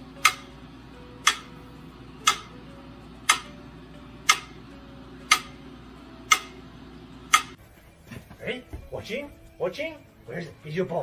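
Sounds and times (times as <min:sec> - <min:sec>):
sharp evenly spaced ticks: 0:00.2 - 0:02.6, 0:03.2 - 0:03.6, 0:04.2 - 0:06.6.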